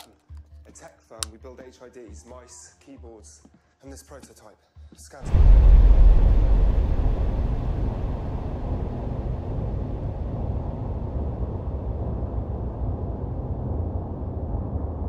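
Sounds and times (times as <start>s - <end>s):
low rumbling drone: 5.2s - 15.0s.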